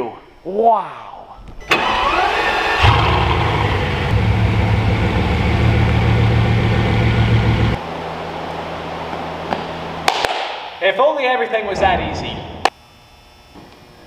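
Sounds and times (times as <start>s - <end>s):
car engine idling: 1.8s - 7.8s.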